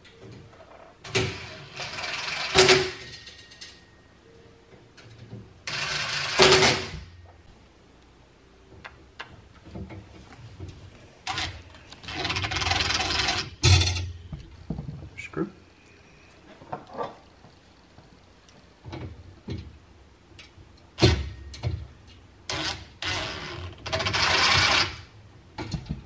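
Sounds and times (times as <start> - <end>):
cordless drill driving screws: 22.5 - 24.9.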